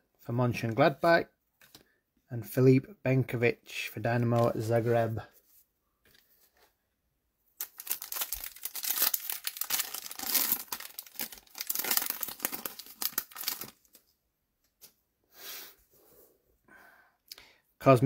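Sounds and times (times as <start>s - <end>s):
foil wrapper tearing and crinkling: 7.6s - 14.0s.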